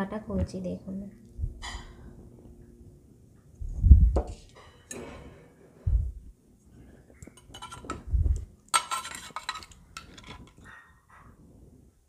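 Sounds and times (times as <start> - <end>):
spoon scraping clay pot: 7.2 - 10.9.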